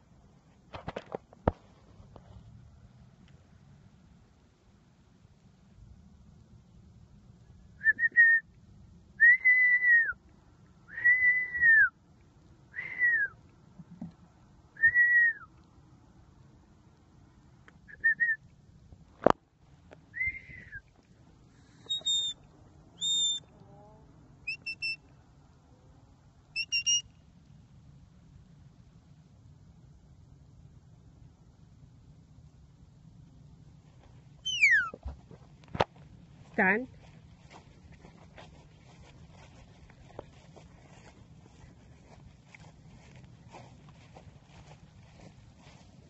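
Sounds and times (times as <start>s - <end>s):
herding whistles: 21.9s - 22.4s, 23.0s - 23.5s, 24.5s - 25.0s, 26.6s - 27.1s, 34.4s - 35.0s.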